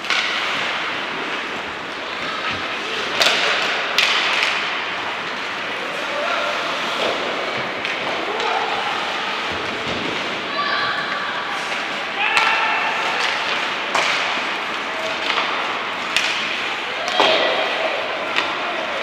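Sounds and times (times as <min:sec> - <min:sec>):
hiss of ice hockey play: 0:00.0 - 0:19.0
distant shouting voices: 0:10.4 - 0:13.6, 0:16.7 - 0:19.0.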